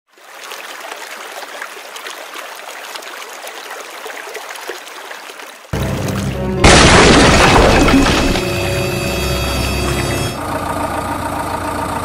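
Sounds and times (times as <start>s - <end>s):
shallow water trickling and splashing: 0.1s - 6.4s.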